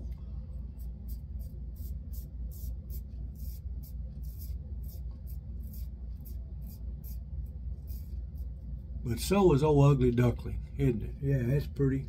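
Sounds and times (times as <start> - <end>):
steady low hum: 0.0 - 12.0
razor scraping stubble: 0.8 - 8.6.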